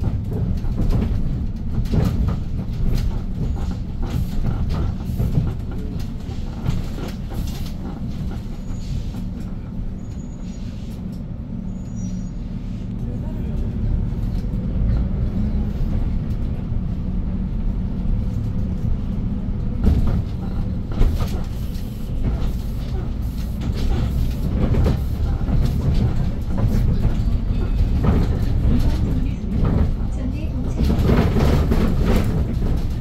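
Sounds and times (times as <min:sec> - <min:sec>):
bus body rattling: 0:00.0 - 0:33.0
bus engine droning: 0:00.0 - 0:33.0.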